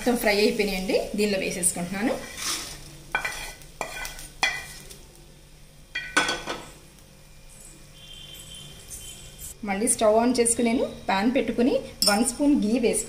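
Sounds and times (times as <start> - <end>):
metal spoon scraping a pan: 2.0 - 5.0.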